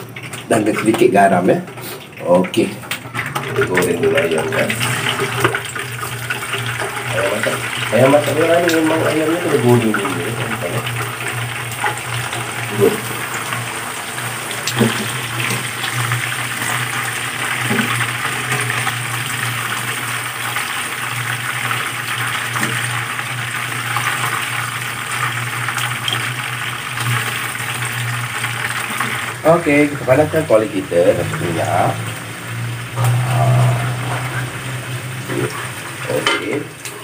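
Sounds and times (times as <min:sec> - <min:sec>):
oil sizzling and crackling: 0:00.0 - 0:37.0
low hum: 0:32.4 - 0:35.2.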